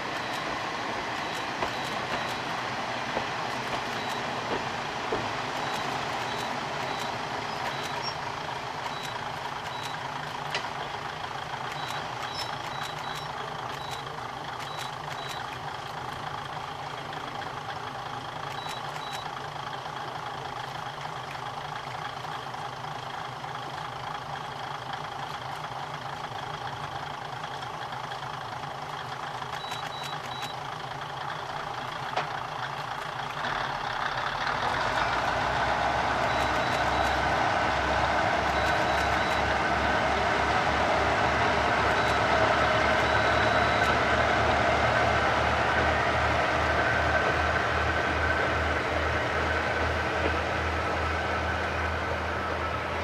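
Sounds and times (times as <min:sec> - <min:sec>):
diesel railcar engine running: 0:00.0 - 0:53.0
short high beeps: 0:01.2 - 0:02.5, 0:03.9 - 0:04.3, 0:05.6 - 0:08.2, 0:08.9 - 0:10.0, 0:11.7 - 0:15.5, 0:18.5 - 0:19.3, 0:29.6 - 0:30.6, 0:36.2 - 0:37.2, 0:38.5 - 0:39.6, 0:41.9 - 0:42.3, 0:43.0 - 0:44.0.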